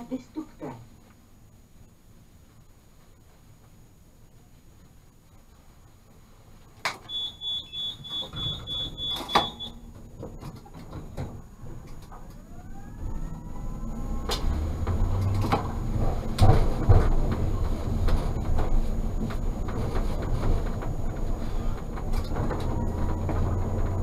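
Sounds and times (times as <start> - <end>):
tram door warning beeps: 7.1 - 9.9
tram doors closing clunk: 7.8 - 12.4, 14.2 - 24.0
tram rumble: 9.8 - 24.0
traction motors whining: 11.4 - 24.0.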